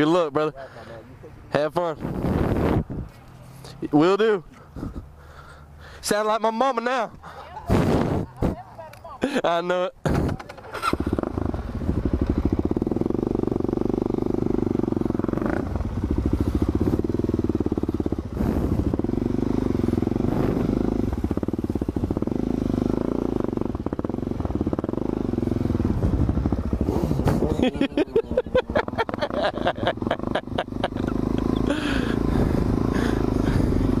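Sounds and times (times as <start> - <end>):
dirt bike engine running: 10.1 - 34.0.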